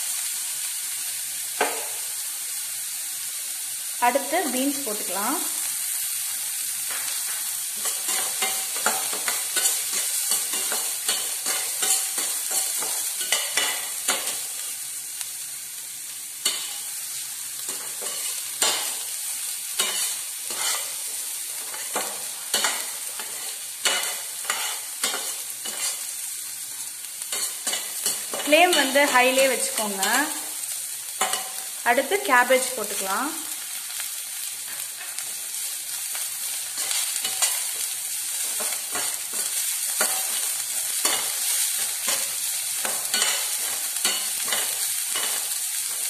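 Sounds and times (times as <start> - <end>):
vegetables sizzling in oil: 0.0 - 46.0
metal spatula scraping a pan: 7.1 - 14.5, 17.7 - 19.1, 19.7 - 26.2, 27.3 - 30.4, 31.2 - 31.8, 36.5 - 46.0.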